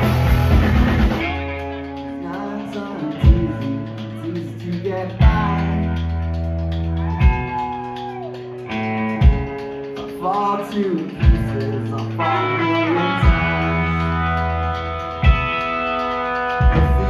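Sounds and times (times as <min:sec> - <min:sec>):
bass: 0:00.0 - 0:17.0
electric guitar lead notes: 0:00.0 - 0:17.0.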